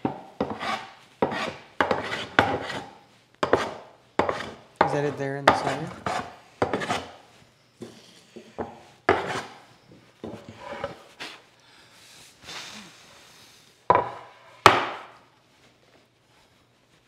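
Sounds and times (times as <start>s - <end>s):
wooden board rubbing on workbench: 0.4s - 4.6s, 5.5s - 7.2s, 8.6s - 9.6s, 10.2s - 11.1s.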